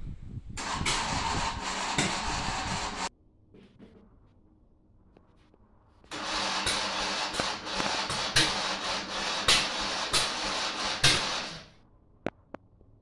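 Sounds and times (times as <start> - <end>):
electric starter cranking engine: 0.6 - 3.1, 6.1 - 11.7.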